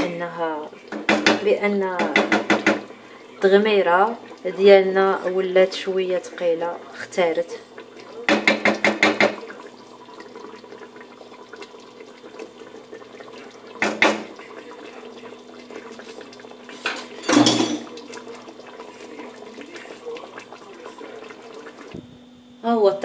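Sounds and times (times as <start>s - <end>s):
sauce bubbling in a pot: 0.0s - 22.3s
faint hum: 9.3s - 23.0s.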